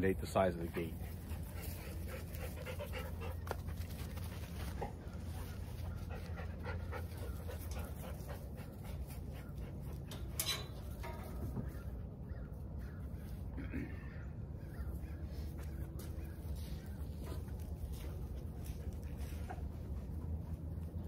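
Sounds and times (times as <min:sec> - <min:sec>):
dog panting: 0:00.7 - 0:10.1.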